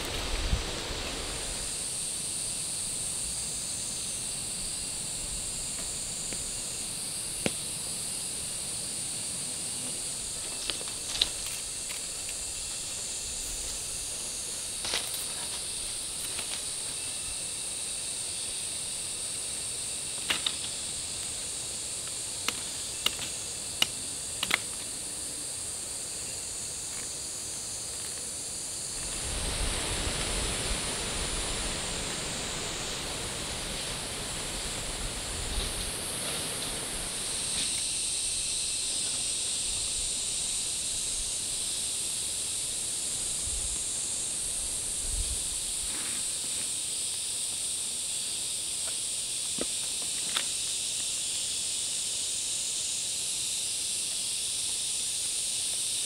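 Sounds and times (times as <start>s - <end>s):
high-pitched outdoor hiss: 0.0s - 56.0s
sharp snaps and clicks: 22.4s - 24.9s
low rushing noise: 28.9s - 37.5s.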